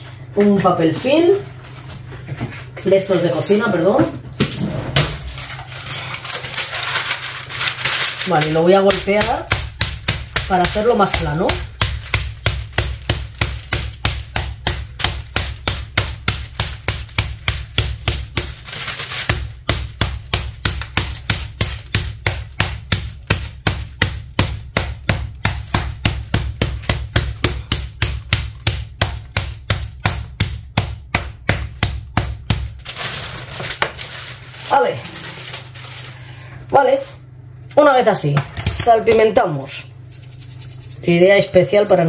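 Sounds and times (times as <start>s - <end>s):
meat being pounded: 7.6s - 34.6s, 38.6s - 39.4s.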